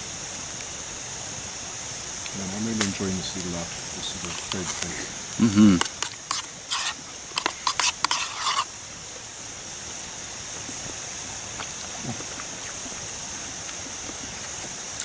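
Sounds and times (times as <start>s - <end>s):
steady high hiss: 0.0s - 15.0s
rustling and scraping: 4.0s - 5.2s, 5.8s - 8.7s.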